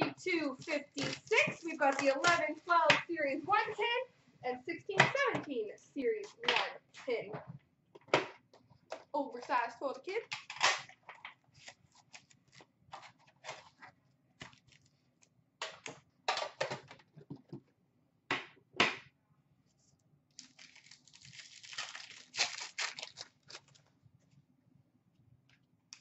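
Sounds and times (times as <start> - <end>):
card packs crinkling: 0.5 - 2.5, 10.4 - 15.0, 20.4 - 23.9
pack wrapper ripping: 20.4 - 23.9.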